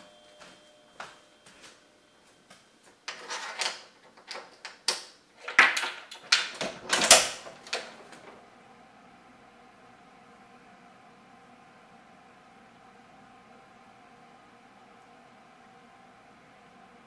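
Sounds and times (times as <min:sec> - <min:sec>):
metal door chain lock rattling: 0:03.1 - 0:04.7, 0:05.4 - 0:08.0.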